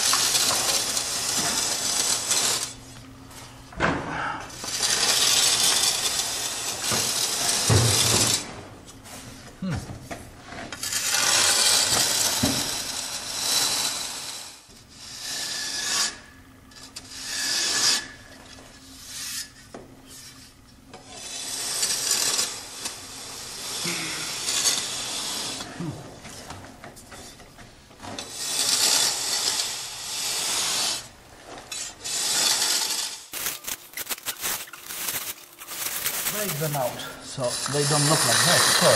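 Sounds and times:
blade scraping mortar: 0:00.0 - 0:02.8, 0:04.6 - 0:08.4, 0:10.7 - 0:18.3, 0:21.0 - 0:25.8, 0:28.2 - 0:31.1, 0:31.7 - 0:38.9.

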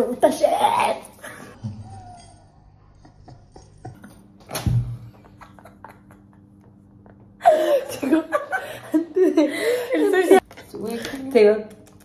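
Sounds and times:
stifled laughter and breathing: 0:07.1 - 0:10.3.

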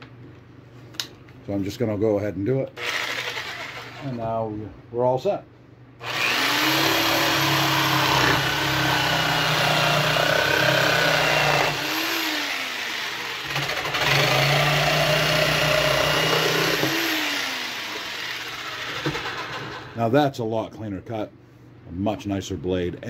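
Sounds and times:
jigsaw cutting wood: 0:02.8 - 0:04.1, 0:06.0 - 0:20.0.

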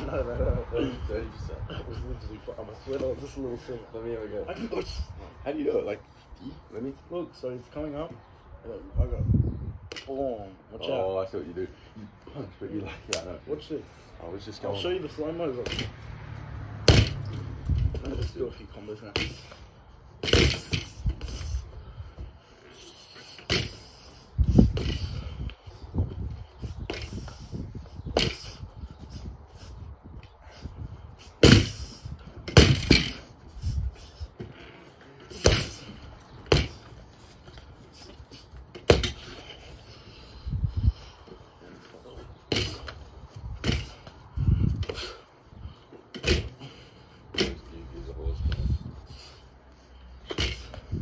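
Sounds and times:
fists thumping punching bag: 0:16.9 - 0:17.3, 0:20.2 - 0:21.0, 0:23.5 - 0:23.8, 0:28.1 - 0:28.5, 0:31.4 - 0:31.9, 0:32.5 - 0:33.3, 0:35.4 - 0:36.9, 0:38.9 - 0:39.3, 0:42.5 - 0:42.9, 0:43.6 - 0:44.0, 0:46.2 - 0:46.6, 0:50.3 - 0:51.0.

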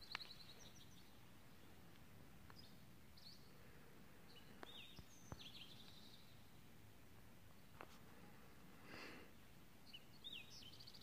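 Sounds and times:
faint bird chirps: 0:00.0 - 0:01.8, 0:02.5 - 0:06.6, 0:09.8 - 0:11.0.

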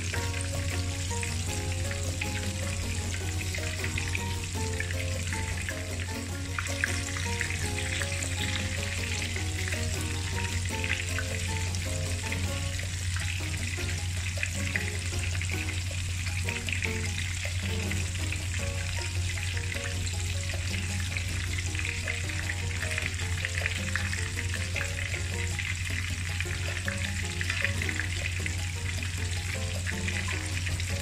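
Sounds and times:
chicken sizzling in hot oil: 0:00.0 - 0:31.0.

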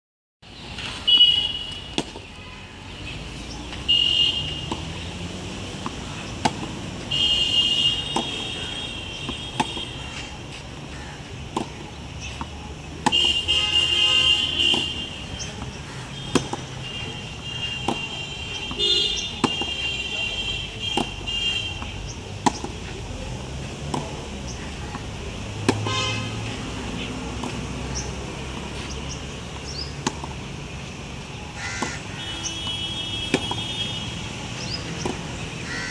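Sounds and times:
tennis ball hit by rackets: 0:01.9 - 0:02.3, 0:04.6 - 0:05.0, 0:05.7 - 0:06.8, 0:08.0 - 0:10.6, 0:11.4 - 0:13.4, 0:14.6 - 0:16.8, 0:17.8 - 0:19.8, 0:20.9 - 0:22.9, 0:23.8 - 0:25.9, 0:27.3 - 0:30.4, 0:31.8 - 0:33.7, 0:34.8 - 0:35.4.

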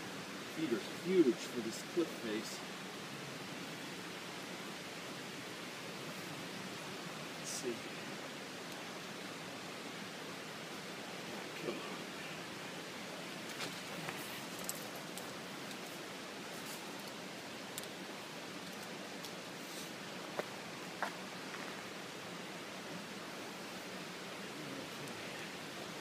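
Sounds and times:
steady rushing hiss: 0:00.0 - 0:26.0
faint sharp clicks: 0:17.0 - 0:18.0.

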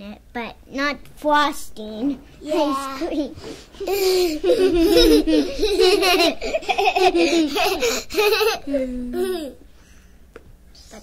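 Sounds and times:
girls laughing: 0:02.5 - 0:09.6.

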